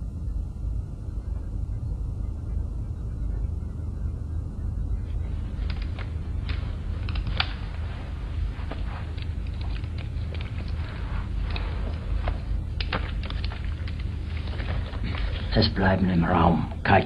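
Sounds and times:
low rumble of room ambience: 0.0s - 17.0s
faint clicks and rustles: 4.8s - 15.8s.

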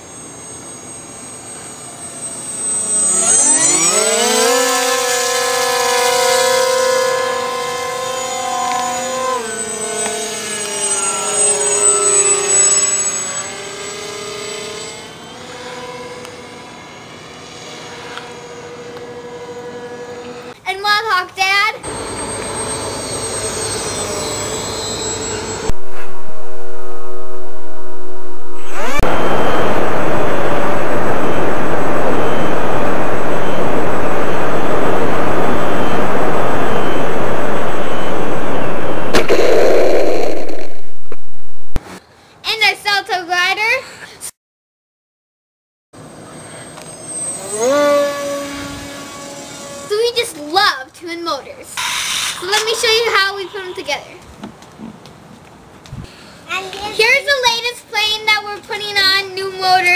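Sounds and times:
model plane motor whine: 0.0s - 20.6s, 21.9s - 39.4s, 46.3s - 50.2s
propeller and wind rush: 25.7s - 42.0s.

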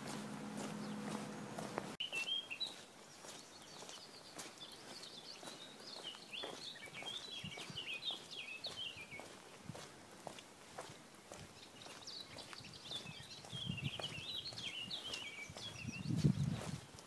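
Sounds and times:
steady low hum: 0.0s - 2.0s
songbird chirping: 0.0s - 17.0s.

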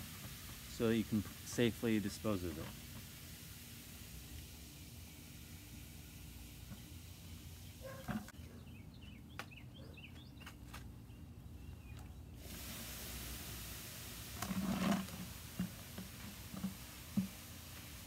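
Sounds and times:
fizzing hiss: 0.0s - 8.0s, 12.3s - 18.0s
small birds chirping: 5.7s - 12.4s.

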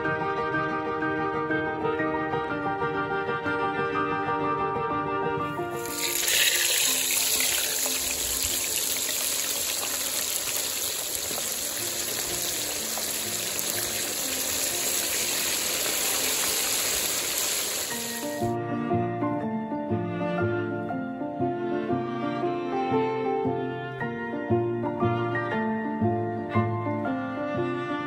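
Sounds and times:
soft background music: 0.0s - 16.9s, 18.2s - 28.0s
hot oil sizzling and crackling: 5.7s - 18.6s.

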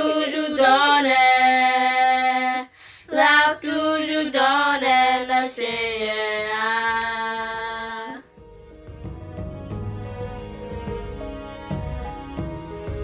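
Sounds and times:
woman and girl singing a hymn: 0.0s - 8.2s.

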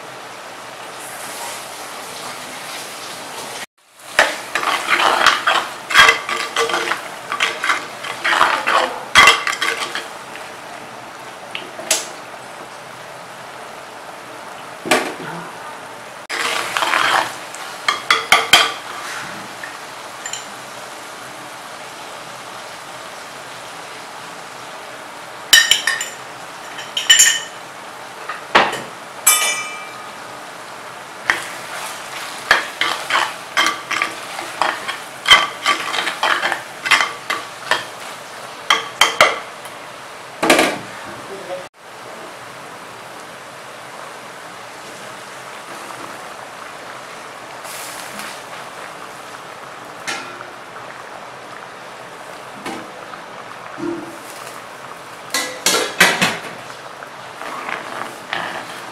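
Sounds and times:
frying sizzle: 0.0s - 58.9s
metal ladle scraping pot: 4.2s - 10.1s, 16.3s - 19.4s, 29.3s - 30.1s, 32.5s - 37.9s.

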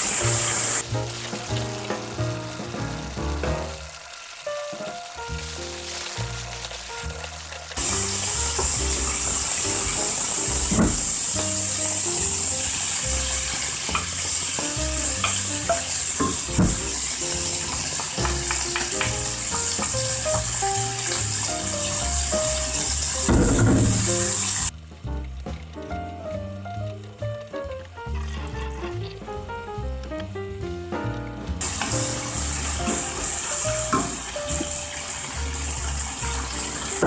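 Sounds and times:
background music: 0.0s - 37.0s
pork sizzling in hot oil: 0.0s - 37.0s.

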